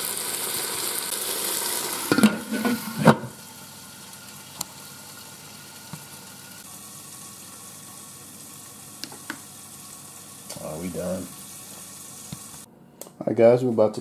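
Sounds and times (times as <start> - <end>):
vegetables sizzling in a pot: 0.0 - 12.7
glass lid clanking on pot: 2.1 - 3.3.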